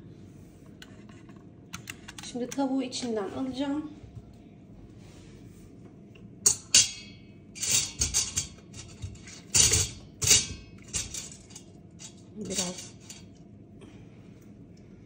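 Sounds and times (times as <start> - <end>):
metal tongs clinking on metal pot: 6.4 - 13.4.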